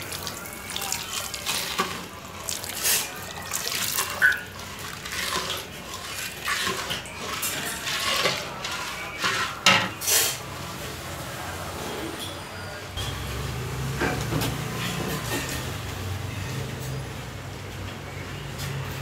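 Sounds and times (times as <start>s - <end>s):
water pouring into a pan: 0.0s - 8.4s
metal spatula scraping a pan: 1.2s - 10.4s.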